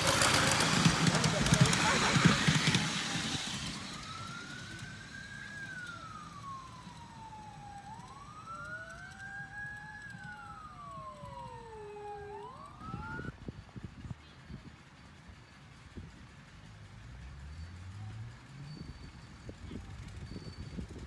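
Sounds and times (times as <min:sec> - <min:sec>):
distant siren wailing: 0:00.0 - 0:13.6
lower wailing siren tone: 0:00.0 - 0:13.6.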